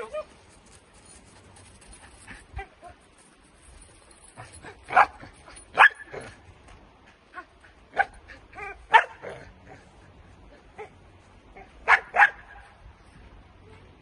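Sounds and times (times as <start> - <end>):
young dog yipping and barking: 0.0 - 0.3, 4.6 - 6.4, 7.3 - 9.4, 10.7 - 12.6.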